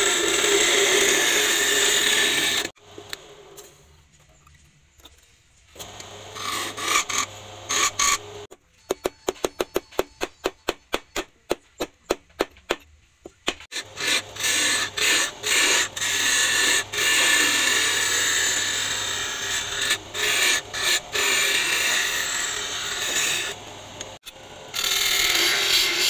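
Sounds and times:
hand file scraping: 0:13.7 - 0:23.6, 0:24.8 - 0:26.0.

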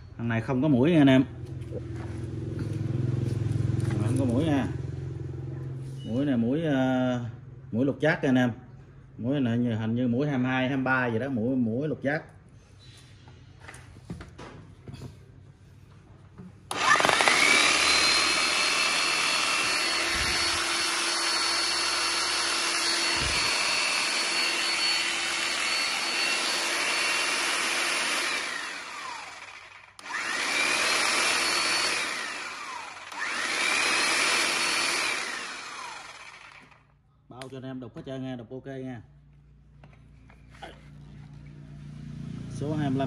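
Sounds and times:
demolition hammer motor whining: 0:16.7 - 0:36.8.

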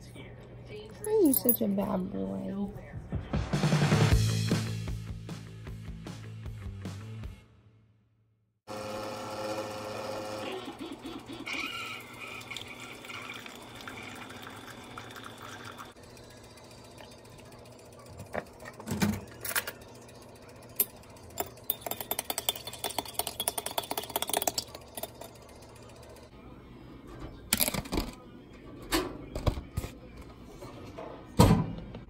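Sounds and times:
coffee maker humming: 0:08.7 - 0:28.6
spoon clinking against mug: 0:20.8 - 0:25.4.

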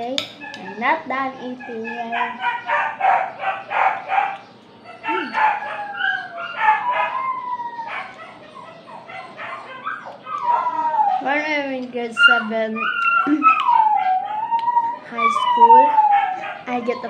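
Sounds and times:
animal calls: 0:01.4 - 0:17.0.

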